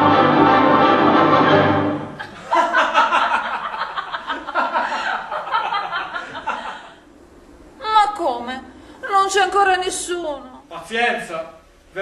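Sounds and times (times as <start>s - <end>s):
people laughing: 2.2s - 7.0s.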